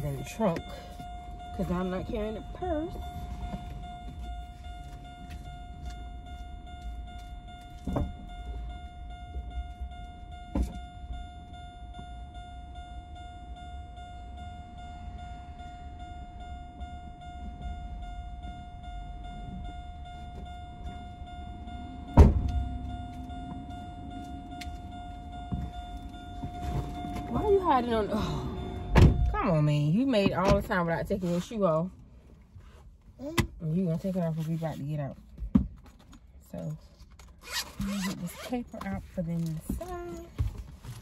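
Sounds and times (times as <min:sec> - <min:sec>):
steady high tone: 0:00.0 - 0:31.9
car low rumble: 0:00.0 - 0:41.0
lower hum: 0:12.6 - 0:32.1.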